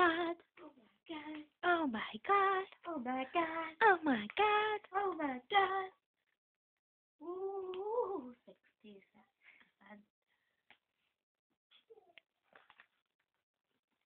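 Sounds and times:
high-pitched voice singing: 7.2 - 8.4.

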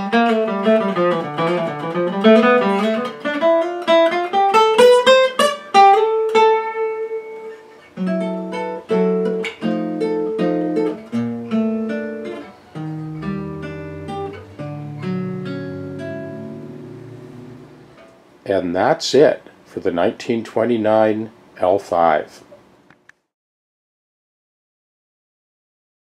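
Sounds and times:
acoustic guitar playing: 0.0 - 19.0.

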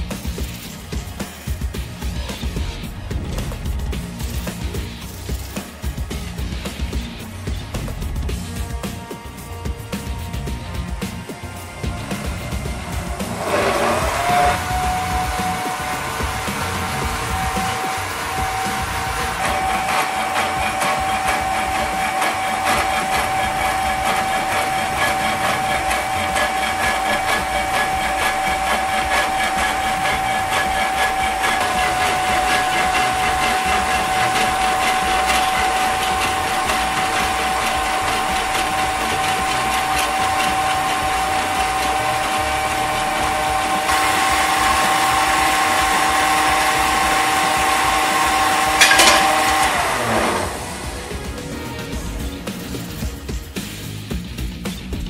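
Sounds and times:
electric motor whine: 0.0 - 52.8
hacksaw blade scraping metal: 11.9 - 50.8.

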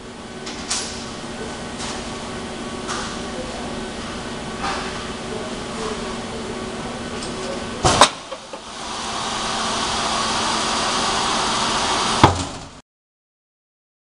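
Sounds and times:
welding machine hiss: 7.9 - 12.3.

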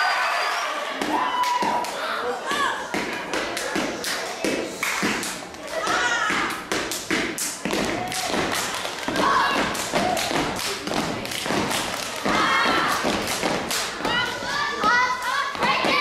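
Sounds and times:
rhythmic foot stomps: 1.0 - 16.0
hand claps: 3.0 - 15.0.

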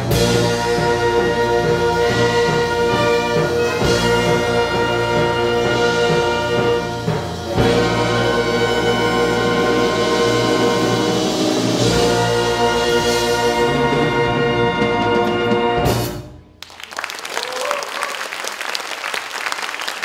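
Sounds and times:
wind orchestra sustained chords: 0.0 - 16.0
audience applauding: 16.6 - 20.0.

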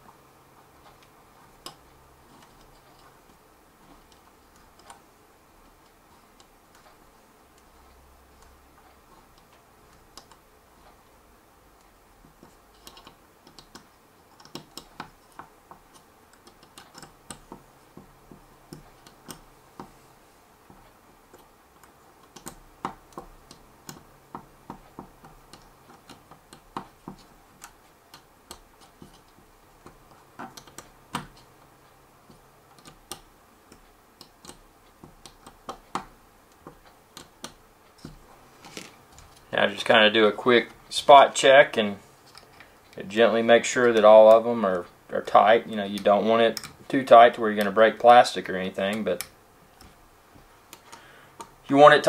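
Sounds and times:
screwdriver clicking on plastic: 12.3 - 19.9, 20.8 - 31.5, 32.3 - 39.5.

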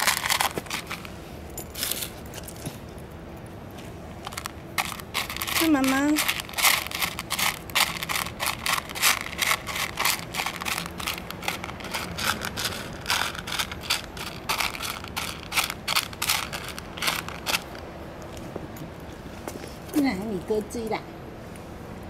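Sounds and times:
rapid crunching clicks: 4.2 - 17.8.

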